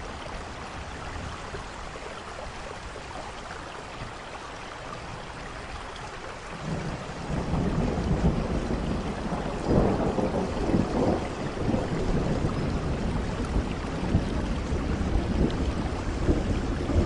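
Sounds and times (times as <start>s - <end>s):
heavy rain: 0.0s - 17.0s
thunder rumbling: 6.6s - 17.0s.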